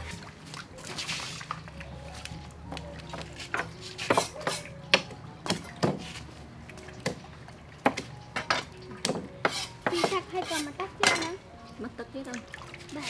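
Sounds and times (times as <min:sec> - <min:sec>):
knife chopping on wooden board: 0:03.6 - 0:06.1, 0:09.0 - 0:11.3.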